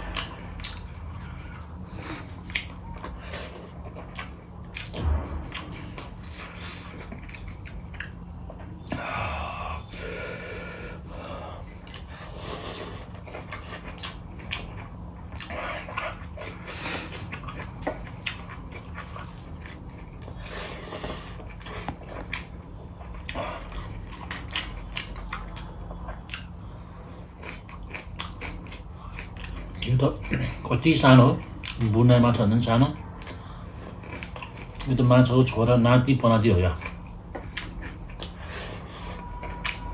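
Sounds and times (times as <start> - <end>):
close chewing and mouth sounds: 0.0 - 9.3, 9.9 - 39.9.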